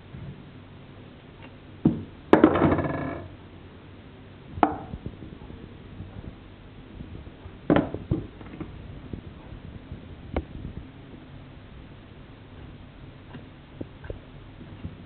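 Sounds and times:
sharp knocks: 4.6 - 5.0.

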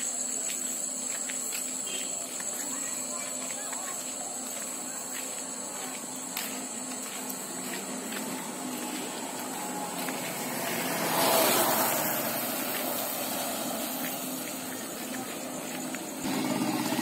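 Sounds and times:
motorcycle passing by: 8.2 - 17.0.

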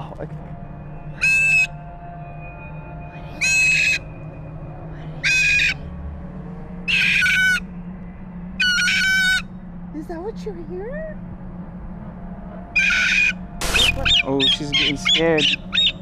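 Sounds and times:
cockatoo screaming: 1.2 - 1.7, 3.2 - 4.0, 5.1 - 5.8, 6.9 - 7.6, 8.6 - 9.4, 12.8 - 16.0.

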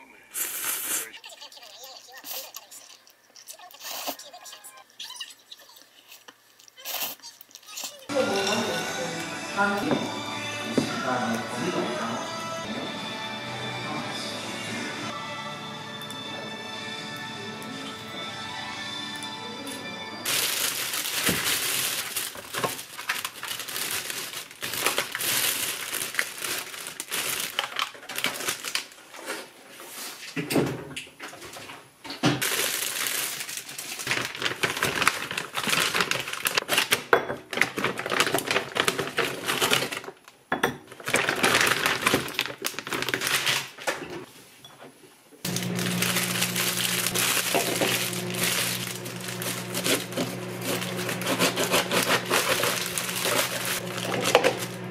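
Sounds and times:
plastic bags rustling: 20.2 - 30.2, 32.4 - 44.3, 45.5 - 54.9.

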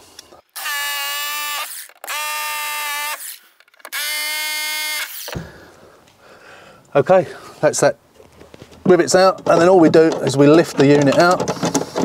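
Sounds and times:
hammer drill whine: 0.6 - 5.5.

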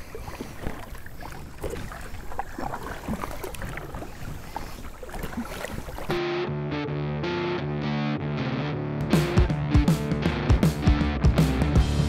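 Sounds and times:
kayak paddle strokes: 0.0 - 6.2
water splashing against hull: 0.0 - 6.3
electric guitar music: 6.1 - 12.0.

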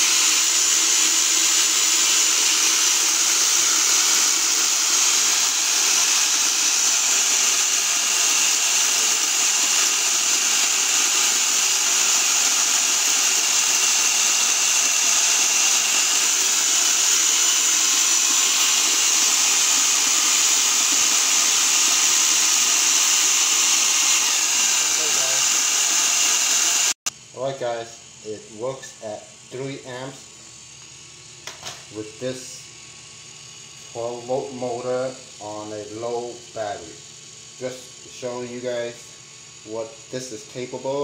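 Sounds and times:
electric motor high whir: 0.0 - 41.0.

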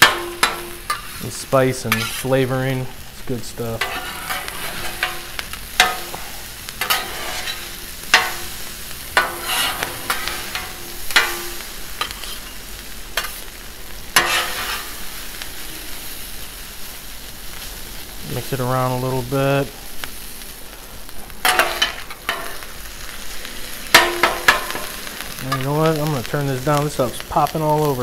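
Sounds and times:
food sizzling on a griddle: 0.0 - 28.0
metal spatulas scraping and clacking: 1.8 - 2.4, 3.7 - 6.2, 6.8 - 8.5, 9.2 - 12.5, 14.2 - 15.0, 21.4 - 22.6.

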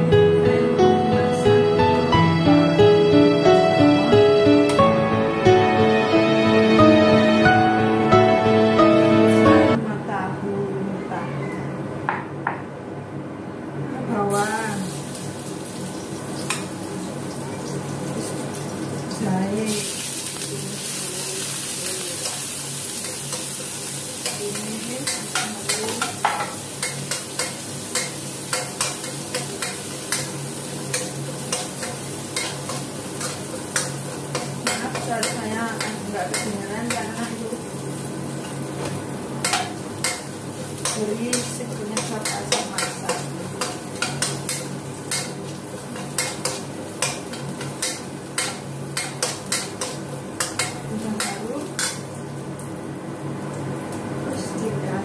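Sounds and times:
food sizzling: 14.3 - 54.8.

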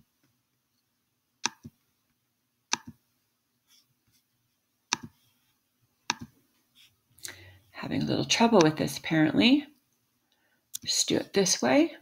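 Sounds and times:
touchpad clicks: 2.7 - 3.0, 6.1 - 6.3.

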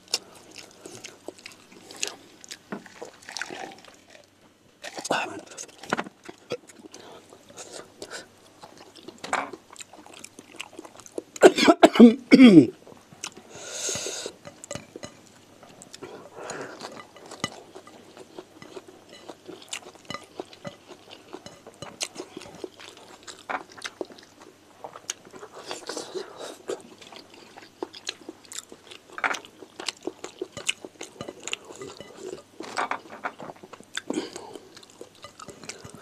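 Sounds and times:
breaths: 13.5 - 14.4, 16.0 - 16.9.

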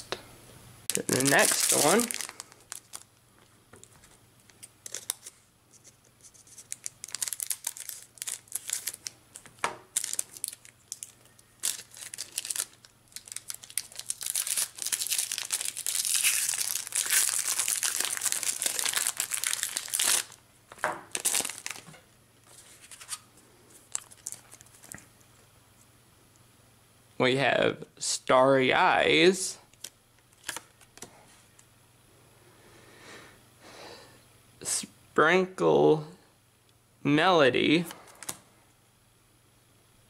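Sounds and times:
foil wrapper crinkling and tearing: 0.9 - 3.1, 4.5 - 5.4, 6.2 - 21.9, 23.8 - 25.0, 29.7 - 31.1.

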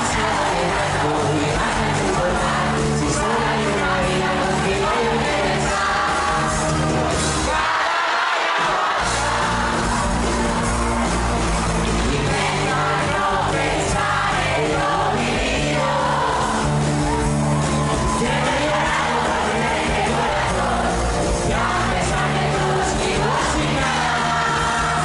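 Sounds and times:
audience yelling and singing: 0.0 - 25.0
live pop-rock band with vocals: 0.0 - 25.0.

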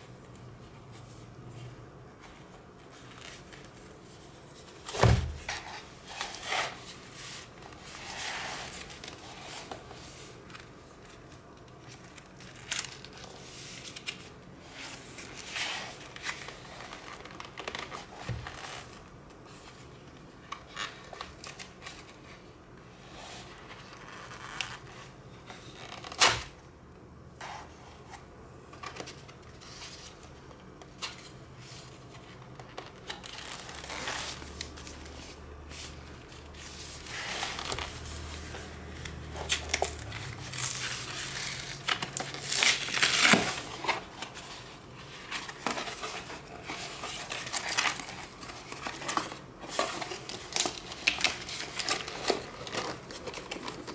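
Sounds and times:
cardboard flap tearing: 4.8 - 6.8, 39.4 - 44.4.

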